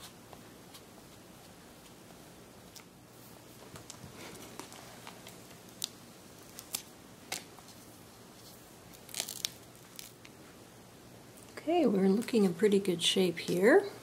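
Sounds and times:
screen protector peeling crackles: 3.8s - 7.8s, 8.4s - 10.4s.

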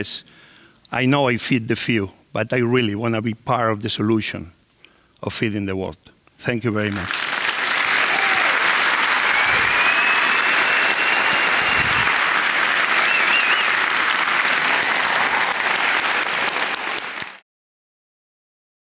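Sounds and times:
audience applauding: 6.9s - 17.4s.

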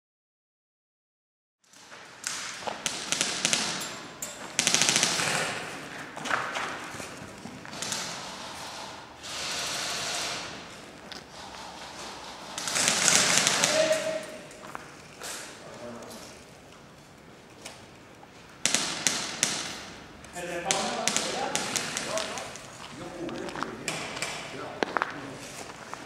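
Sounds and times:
airsoft guns firing bursts: 2.2s - 5.8s, 7.7s - 10.7s, 11.9s - 14.3s, 18.6s - 22.7s.

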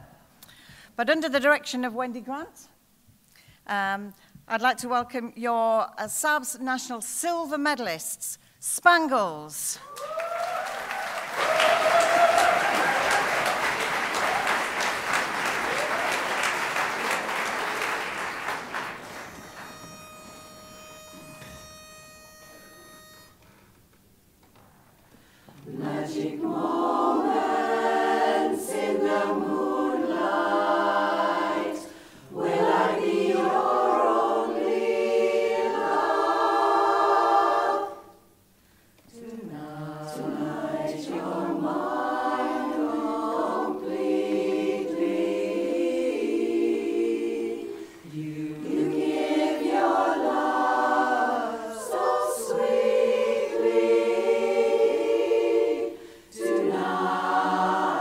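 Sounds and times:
women's chorus singing a cappella: 25.5s - 38.3s, 39.1s - 58.0s.

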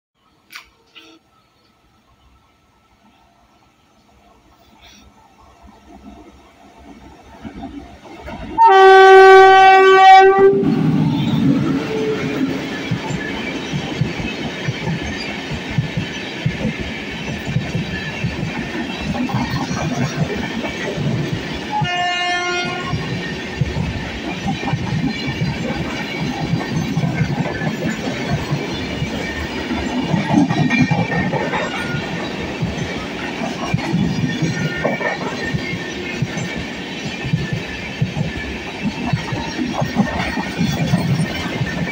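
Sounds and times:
passing train rumble: 1.6s - 41.9s
train horn blast: 8.6s - 10.8s, 21.7s - 23.0s
train wheels clacking over rail joints: 10.8s - 41.9s.

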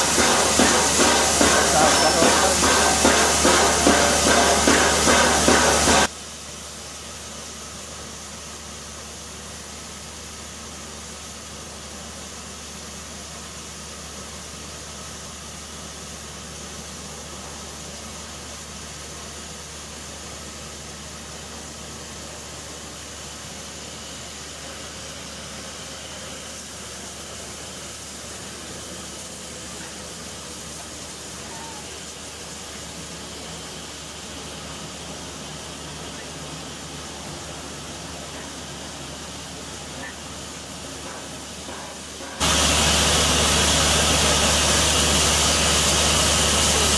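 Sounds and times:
steam hissing from locomotive: 0.0s - 46.9s.

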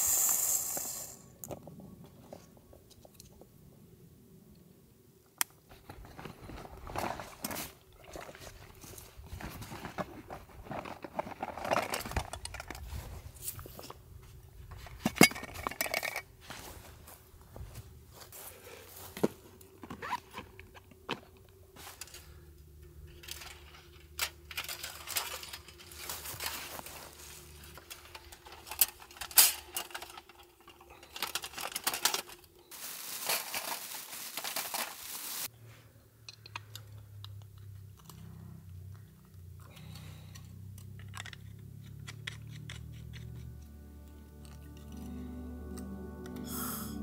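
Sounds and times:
loud crinkling and rustling: 5.7s - 14.0s, 23.1s - 35.5s.

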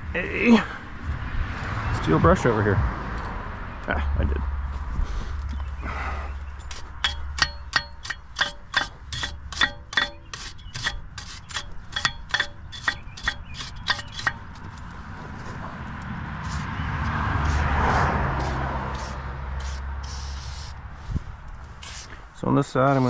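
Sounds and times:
wire brush scrubbing metal: 6.6s - 14.8s, 16.4s - 20.8s, 21.8s - 22.2s, 22.8s - 23.0s.

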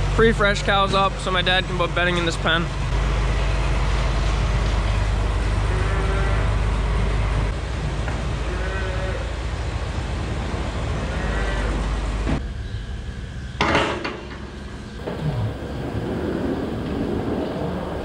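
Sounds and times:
barn noise: 2.6s - 18.0s
cows lowing: 5.4s - 9.4s, 10.8s - 12.2s.

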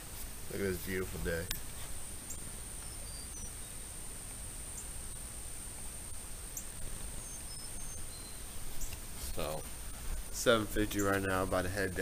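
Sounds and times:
high falling bird chirps: 2.2s - 3.9s, 4.7s - 5.2s, 6.5s - 9.6s.

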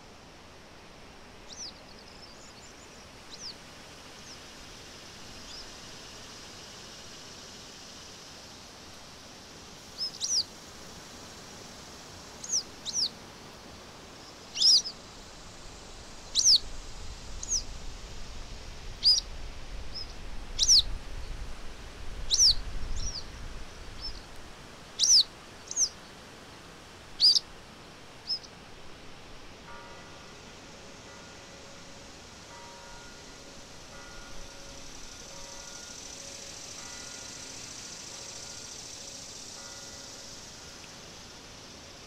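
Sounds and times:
background hiss: 0.0s - 42.0s
songbird chirping: 1.4s - 8.2s, 9.8s - 11.0s, 12.0s - 17.8s, 19.0s - 21.4s, 22.3s - 26.2s, 27.2s - 27.5s, 28.2s - 28.6s.

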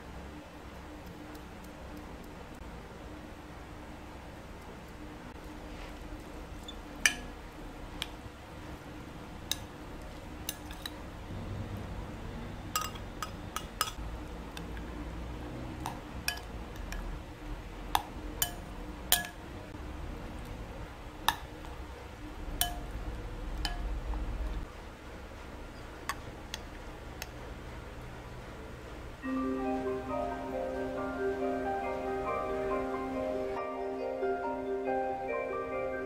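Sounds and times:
metal spoon clinking on glass bowl: 7.0s - 7.3s, 12.8s - 14.0s, 16.3s - 17.0s, 18.0s - 19.4s, 22.6s - 23.0s, 23.6s - 23.9s.

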